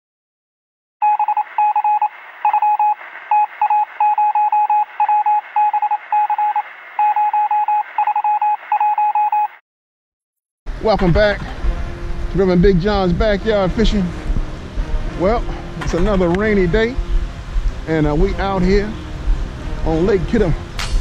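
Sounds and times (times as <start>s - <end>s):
morse code beeping: 1.0s - 9.6s.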